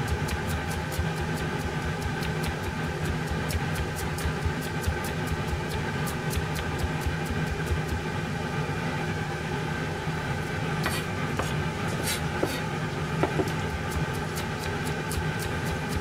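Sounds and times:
steady hum: 0.0s - 16.0s
knife tapping on cutting board: 13.2s - 13.6s.

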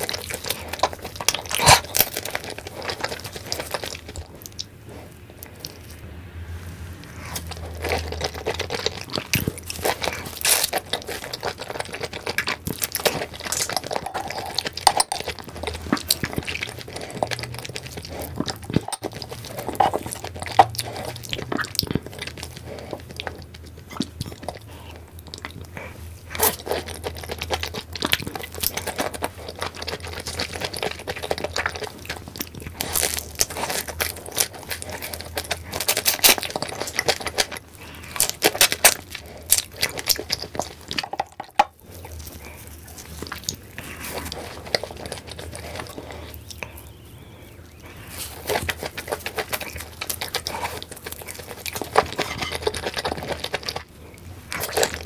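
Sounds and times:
lip smacks: 0.0s - 6.0s, 7.0s - 55.0s
small crunches: 0.0s - 6.0s, 7.1s - 55.0s
wet chewing: 0.0s - 55.0s.

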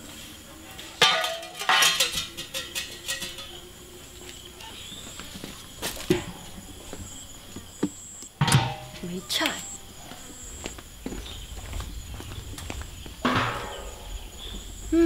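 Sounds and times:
household objects knocking and clattering: 0.8s - 3.6s, 8.4s - 9.0s.

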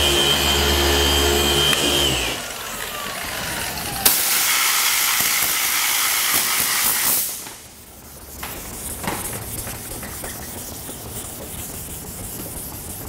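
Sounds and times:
power tool running: 0.0s - 7.0s
loud steady hiss: 4.0s - 7.8s.

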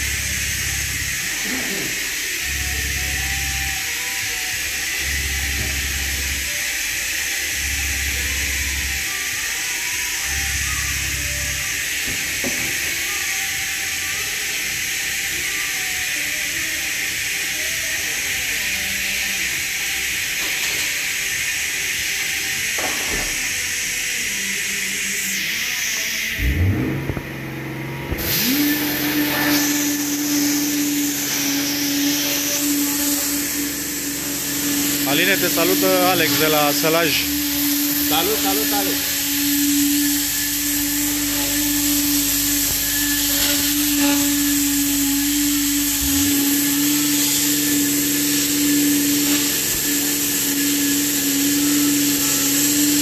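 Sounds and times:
electric blower motor whine: 0.0s - 21.3s, 22.2s - 53.0s
low hum: 26.4s - 53.0s
spray bottle hissing: 28.1s - 53.0s.

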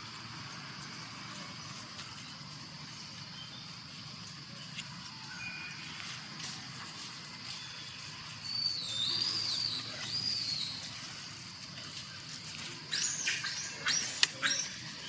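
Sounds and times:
high-pitched insect drone: 0.0s - 15.0s
bird chirps: 7.5s - 11.0s, 12.9s - 15.0s.

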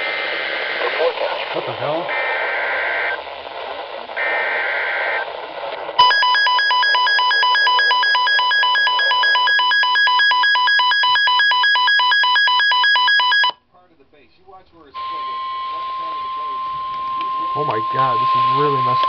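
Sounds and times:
radio hiss: 0.0s - 10.1s, 13.8s - 19.0s
warbling data bursts: 0.8s - 3.2s, 14.8s - 19.0s
pulsing electronic alarm beep: 6.0s - 13.6s, 15.0s - 19.0s.

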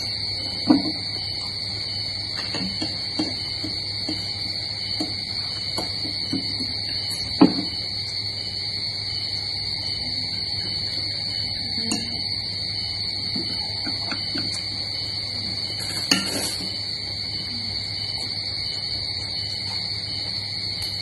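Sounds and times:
spoons clinking on plates: 15.8s - 16.7s.

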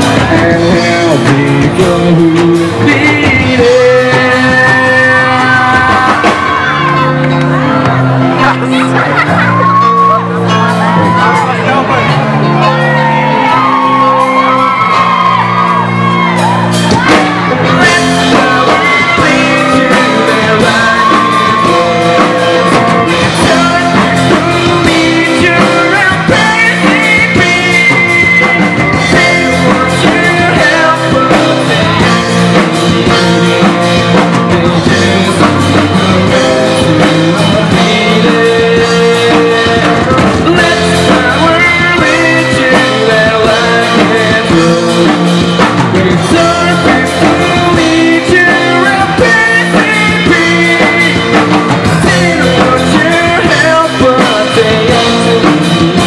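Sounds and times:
bass guitar: 0.0s - 56.0s
drum kit: 0.0s - 56.0s
electric guitars: 0.0s - 56.0s
person singing: 0.0s - 56.0s.

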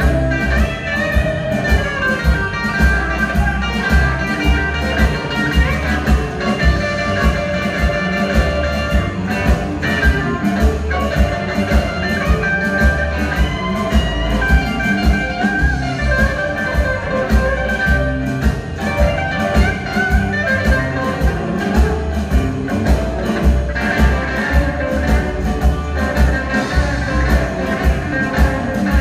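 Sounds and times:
bass and drum groove: 0.0s - 29.0s
electric guitar long notes: 0.0s - 29.0s.

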